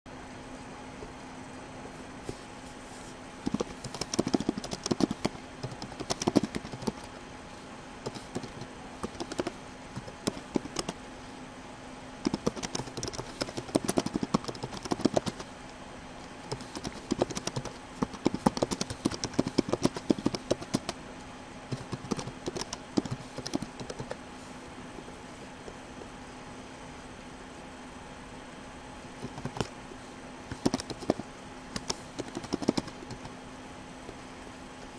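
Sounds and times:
faint steady hum: 0.1 - 34.9
keyboard typing: 3.4 - 7.1, 8.0 - 11.0, 12.2 - 15.5, 16.5 - 21.0, 21.7 - 24.2, 29.2 - 29.7, 30.5 - 33.4.

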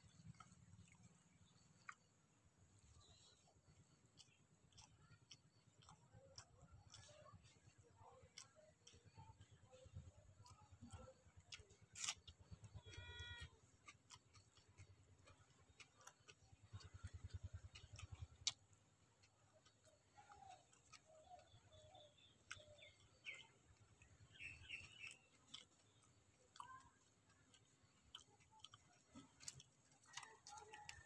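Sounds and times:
soft chewing: 0.0 - 31.0
faint bird chirps: 11.6 - 13.6, 19.9 - 27.1.

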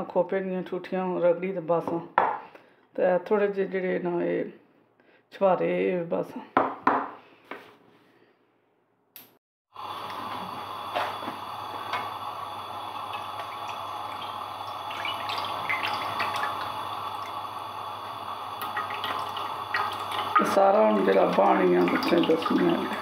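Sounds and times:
hot ghee pouring splash: 11.5 - 23.0.

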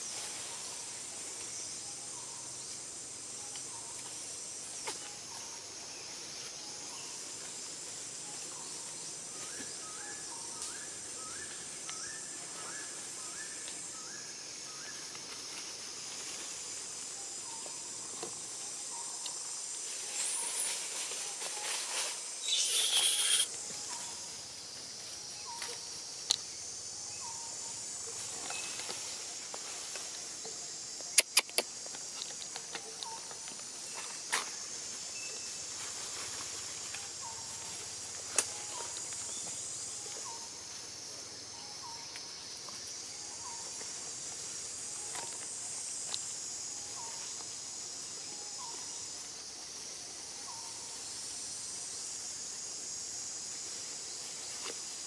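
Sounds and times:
high-pitched insect chorus: 0.0 - 55.0
faint short chirps: 22.4 - 23.5
sharp clicks: 31.1 - 32.4.

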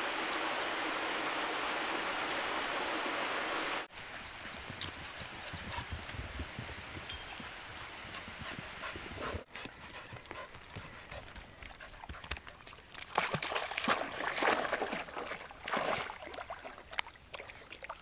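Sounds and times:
dogs' paws patting the ground: 4.0 - 15.0.

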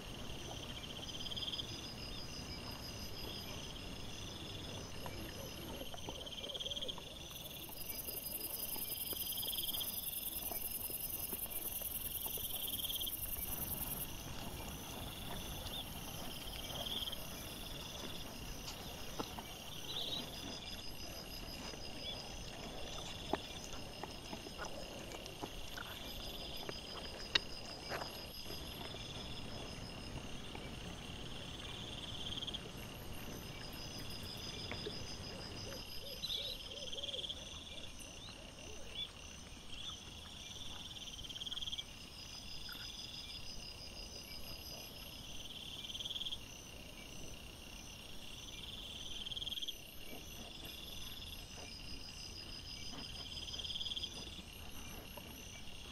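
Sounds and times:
insects chirping: 0.0 - 55.9
wild boar rustling on forest floor: 7.4 - 35.8.

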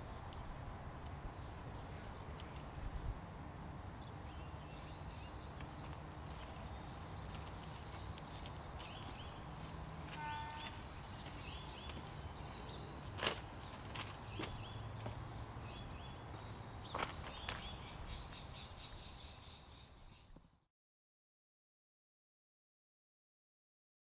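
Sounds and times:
small birds chirping: 4.0 - 20.6.

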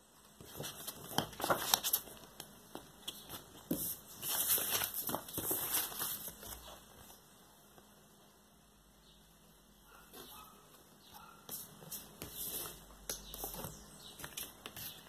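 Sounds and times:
paper rustling and crinkling: 0.4 - 7.2.

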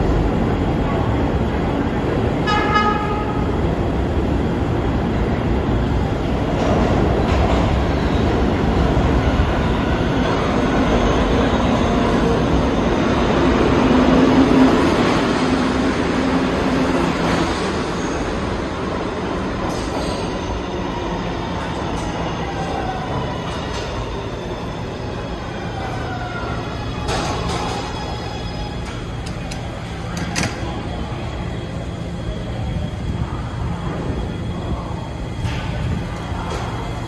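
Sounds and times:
subway train wheels rumbling: 0.0 - 37.0.

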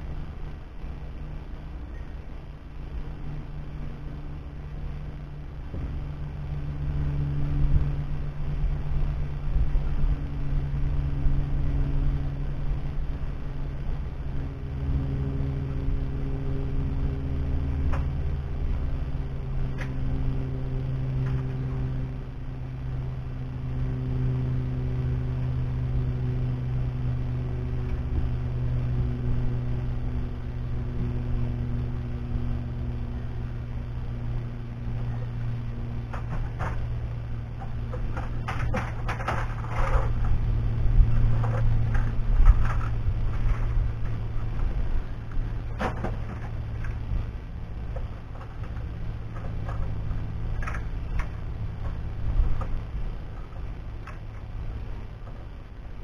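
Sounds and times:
engine humming: 0.0 - 56.0.

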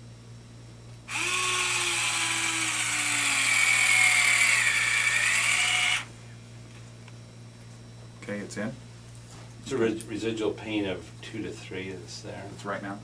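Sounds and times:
high-pitched drill motor whine: 1.1 - 6.1.

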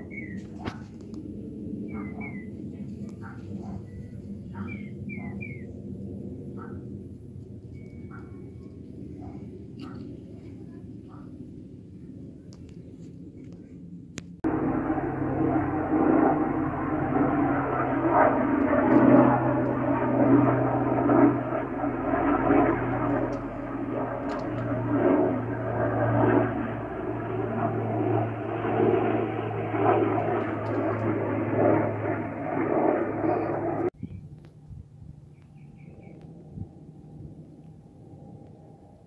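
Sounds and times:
helicopter engine and rotor noise: 0.0 - 11.4, 14.4 - 34.0.

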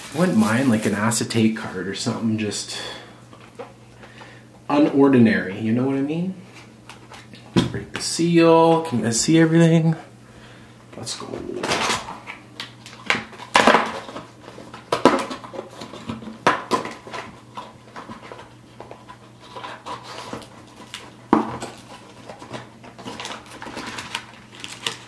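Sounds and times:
cardboard rustling and scraping: 0.0 - 1.4.

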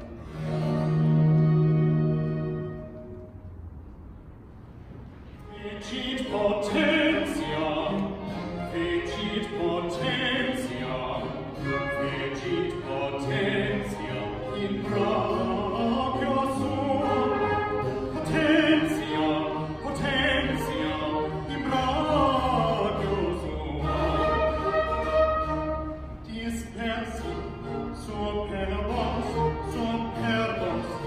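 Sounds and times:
baroque string ensemble: 0.0 - 31.0
man singing aria with vibrato: 5.5 - 25.4, 26.2 - 31.0.

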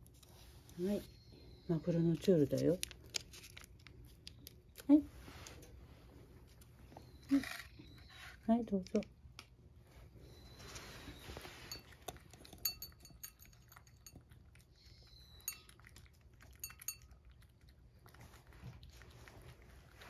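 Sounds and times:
packet rustling: 2.5 - 4.6
light clinks on ceramic bowl: 11.7 - 14.4, 15.4 - 15.9, 16.5 - 17.2.

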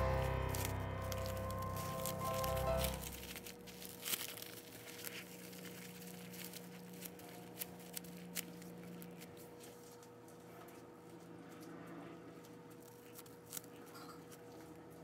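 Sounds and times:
background music: 0.0 - 3.4
plastic cling wrap crinkling: 0.0 - 10.2.

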